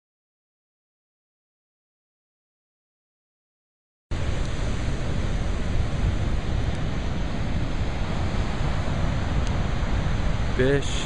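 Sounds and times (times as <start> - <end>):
ocean surf: 4.1 - 11.0
wind buffeting microphone: 4.1 - 11.0.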